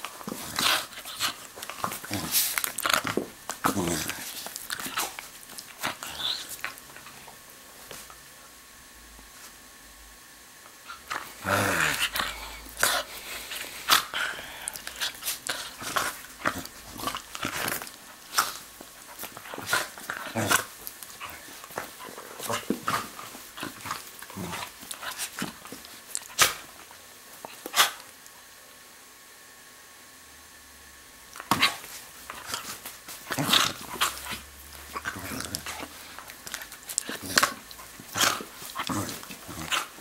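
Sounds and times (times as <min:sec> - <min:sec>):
dog play-growling: 0:00.0 - 0:08.1, 0:10.8 - 0:28.1, 0:31.3 - 0:40.0
dog jaws snapping: 0:22.5 - 0:26.6, 0:31.4 - 0:32.7.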